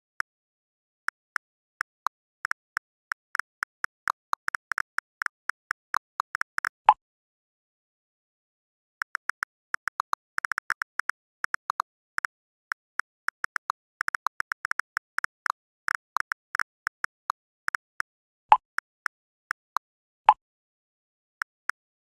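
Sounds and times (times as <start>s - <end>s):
phone keyboard clicking: 1.1s - 6.8s, 9.0s - 19.6s.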